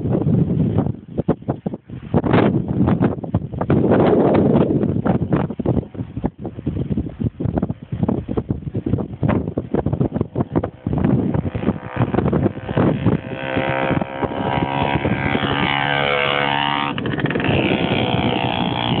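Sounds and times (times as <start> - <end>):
wind buffeting microphone: 0.0 - 19.0
moped two-stroke engine passing: 10.2 - 19.0.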